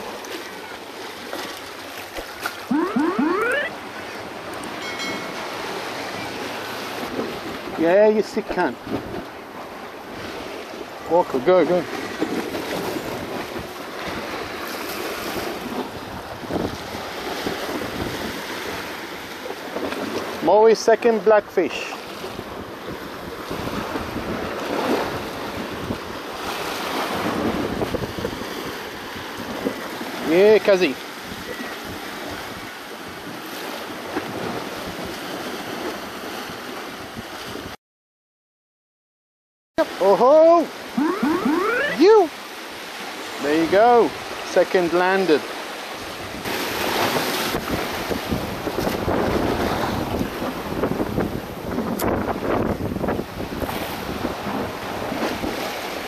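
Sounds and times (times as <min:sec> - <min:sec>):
wind buffeting microphone: 0:46.2 - 0:55.7.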